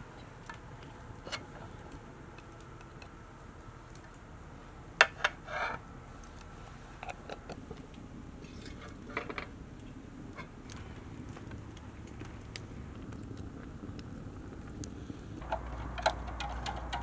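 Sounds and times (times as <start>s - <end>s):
wood fire crackling: 0.0s - 17.0s
utensil scraping pan: 5.0s - 5.8s.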